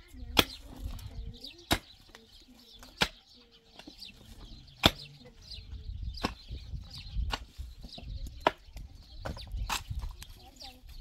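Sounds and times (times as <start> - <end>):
digging tool striking rocky ground: 4.8 - 5.2.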